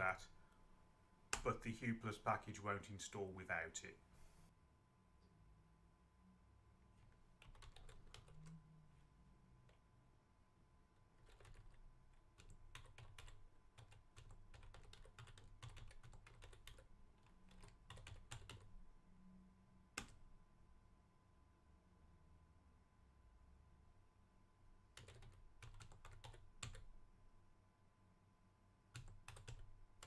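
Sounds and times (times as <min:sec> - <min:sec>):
computer keyboard typing: 0:07.0 - 0:08.6, 0:11.2 - 0:18.7, 0:20.0 - 0:20.2, 0:24.9 - 0:26.9, 0:28.9 - 0:30.0.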